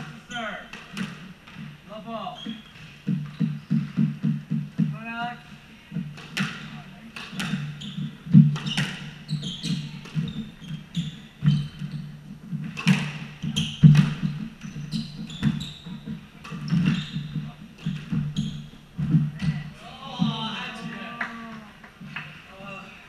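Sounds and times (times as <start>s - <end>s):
shoes squeaking: 0.0s - 21.2s
rackets striking ball: 0.6s - 1.7s, 5.9s - 12.0s, 12.6s - 21.0s.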